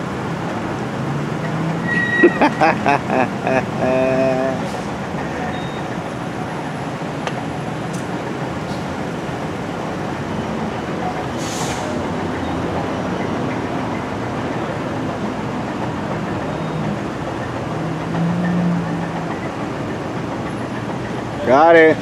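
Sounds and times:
street traffic rumble: 0:00.0 - 0:22.0
brief hiss: 0:11.4 - 0:12.0.

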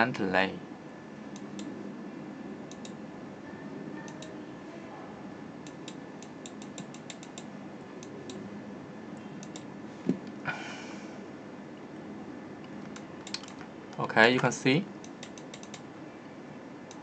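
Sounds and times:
faint hum: 0:00.0 - 0:17.0
mouse and keyboard clicks: 0:05.7 - 0:08.4, 0:09.4 - 0:09.7, 0:12.8 - 0:13.7, 0:15.0 - 0:15.8.

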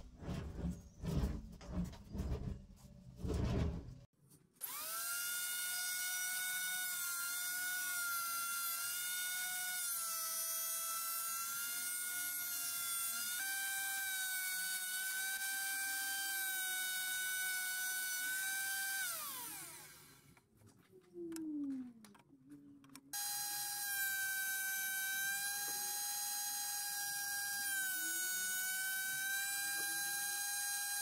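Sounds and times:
electric jointer motor whine: 0:04.6 - 0:20.3, 0:23.2 - 0:31.0.

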